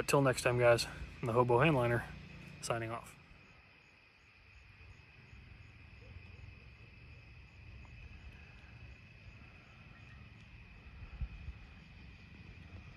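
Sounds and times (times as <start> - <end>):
crickets trilling: 0.0 - 12.9
low rumble: 7.9 - 12.9.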